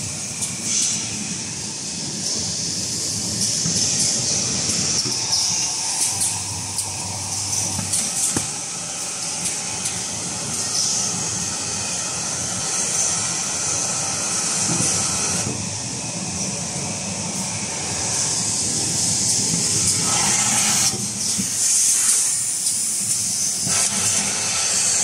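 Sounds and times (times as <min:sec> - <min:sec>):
machine running: 0:02.1 - 0:21.0.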